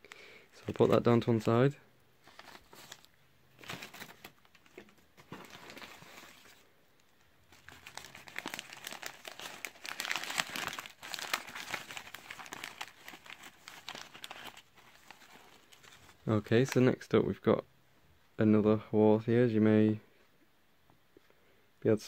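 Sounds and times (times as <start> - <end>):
newspaper crinkling and rustling: 2.2 - 6.6, 7.5 - 16.8.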